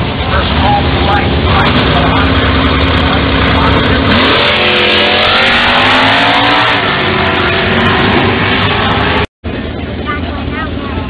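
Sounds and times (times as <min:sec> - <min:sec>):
race car engines accelerating: 0:00.0 - 0:11.0.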